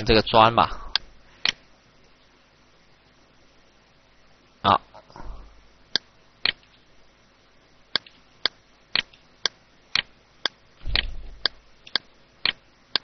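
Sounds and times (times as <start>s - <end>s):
sharp clicks: 7.9s - 13.0s.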